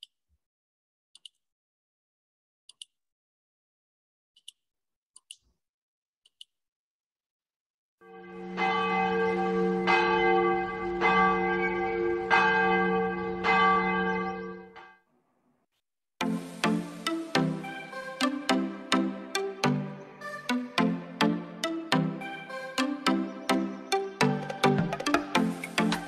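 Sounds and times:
large church bell tolling: 8.1s - 14.8s.

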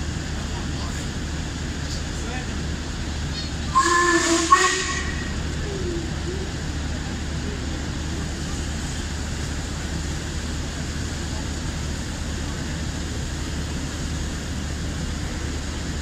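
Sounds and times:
steam locomotive rumble: 0.0s - 16.0s
steam whistle blast: 3.7s - 5.4s.

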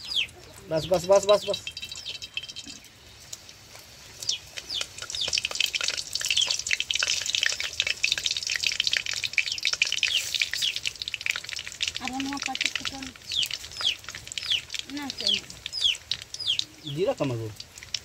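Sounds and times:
chillies sizzling in hot oil: 0.0s - 18.0s.

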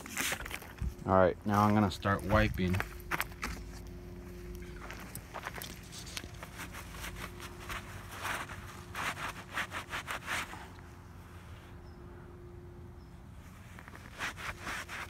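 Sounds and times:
cloth rag rubbing tree bark: 5.8s - 10.8s, 13.6s - 15.0s.

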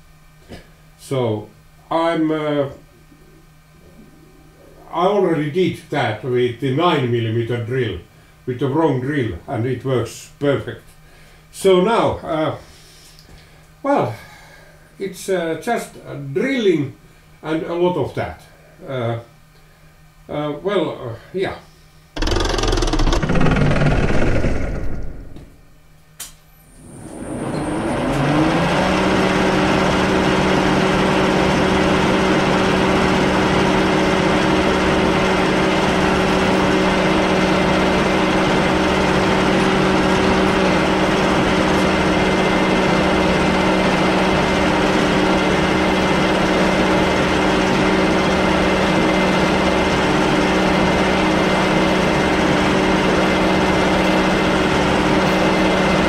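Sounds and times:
lathe motor humming: 22.2s - 25.8s, 27.1s - 56.0s.

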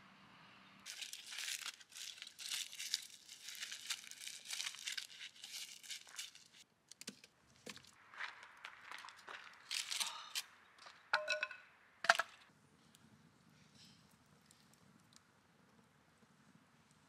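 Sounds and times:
hands crumpling and tearing crinkly material: 0.9s - 6.6s, 8.7s - 10.4s.

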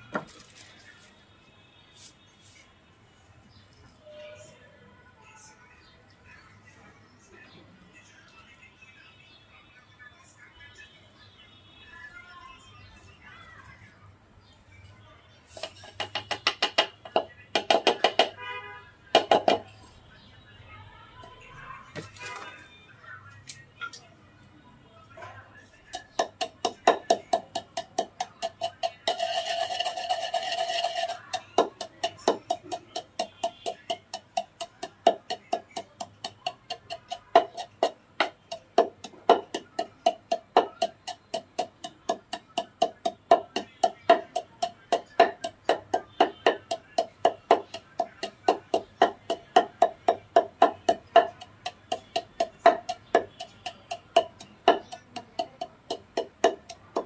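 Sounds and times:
pestle pounding in wooden mortar: 15.6s - 18.4s, 19.2s - 19.7s, 25.8s - 57.0s.

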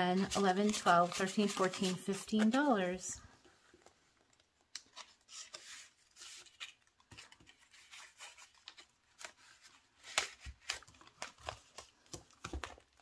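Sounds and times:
paper bills rustling: 0.2s - 3.0s.

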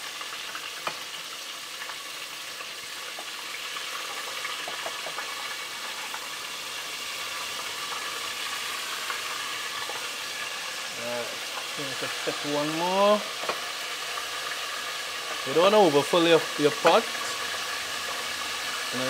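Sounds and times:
fish deep-frying in oil: 0.0s - 19.0s
oil pops and crackles: 0.1s - 10.6s, 13.3s - 15.6s.

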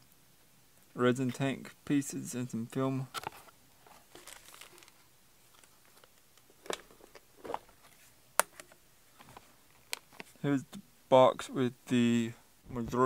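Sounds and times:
plastic rustling: 3.1s - 10.4s.

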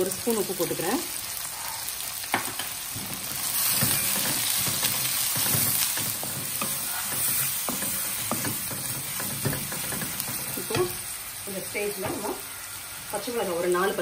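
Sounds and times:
onions sizzling in oil: 0.0s - 14.0s
spatula scraping a pan: 1.4s - 11.1s.

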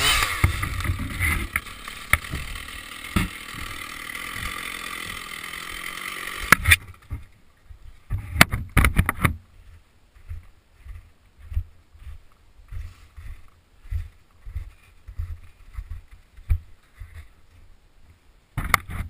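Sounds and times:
chainsaw idling: 0.0s - 7.2s
handling knocks and clicks: 8.1s - 9.4s.

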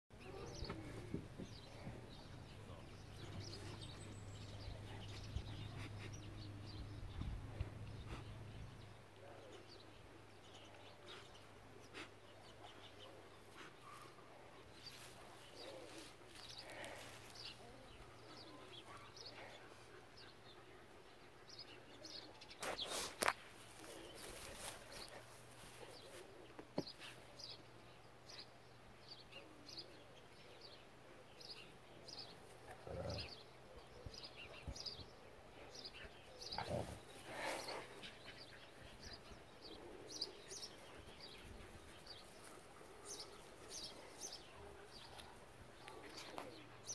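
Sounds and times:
small birds chirping: 0.1s - 46.9s.

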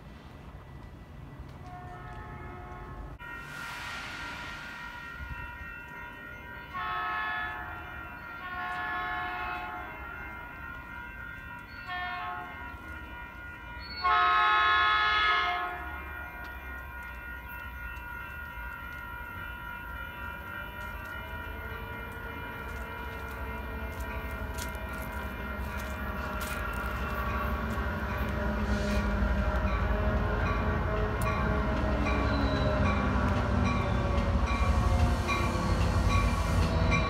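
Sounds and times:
train rumble: 0.0s - 37.0s
locomotive air horn blasts: 1.6s - 3.2s, 6.7s - 7.8s, 8.4s - 9.9s, 11.9s - 12.6s, 14.0s - 16.2s.

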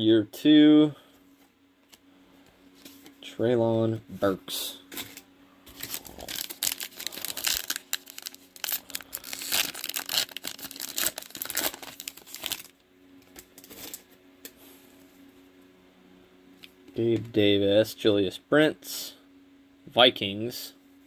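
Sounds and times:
foil wrapper crinkling: 5.0s - 14.0s.

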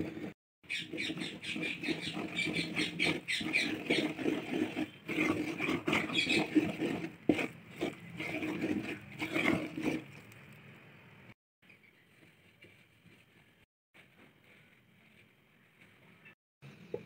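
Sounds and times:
wooden spatula stirring thick batter: 0.0s - 10.5s.

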